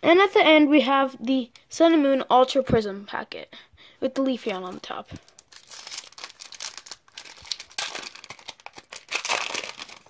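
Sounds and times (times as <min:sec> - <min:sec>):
foil wrapper tearing and crinkling: 0:05.2 - 0:10.0.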